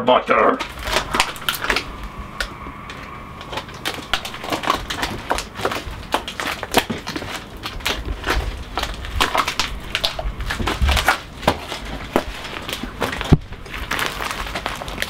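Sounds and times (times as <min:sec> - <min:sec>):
plastic tub crackling: 0:03.4 - 0:15.0.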